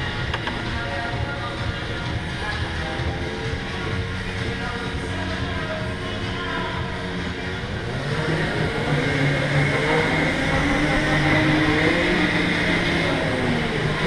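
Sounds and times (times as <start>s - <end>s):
electric go-kart motor whining: 6.7s - 14.0s.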